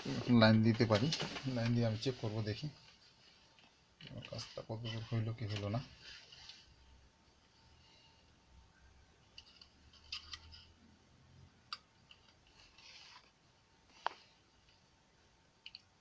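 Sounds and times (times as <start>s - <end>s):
faint low hum: 0.0s - 16.0s
small parts clicking and tapping: 9.3s - 10.7s.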